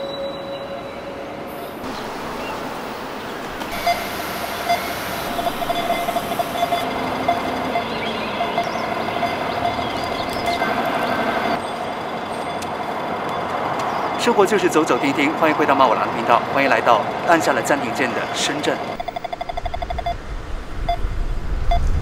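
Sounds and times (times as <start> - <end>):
sustained hum: 0.0 - 12.9
distant traffic rush: 0.0 - 22.0
faint high chirps: 3.6 - 10.7.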